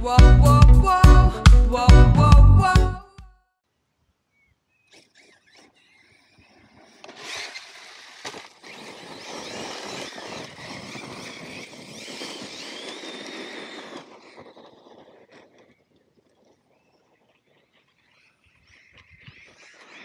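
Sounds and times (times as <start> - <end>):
electric motor whine: 4.7 - 20.0.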